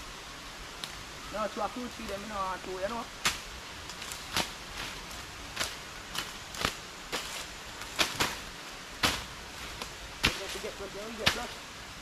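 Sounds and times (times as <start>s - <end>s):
machetes slashing undergrowth: 3.2s - 11.6s.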